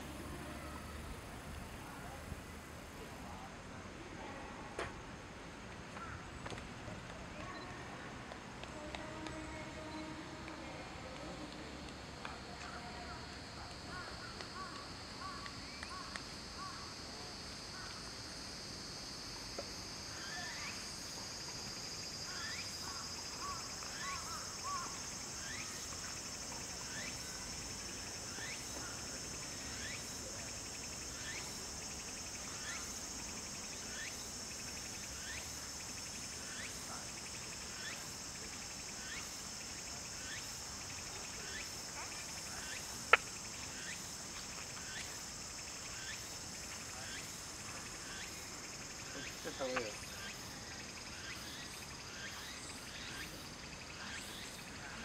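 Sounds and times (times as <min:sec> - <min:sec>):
high-pitched insect drone: 0:16.6 - 0:55.0.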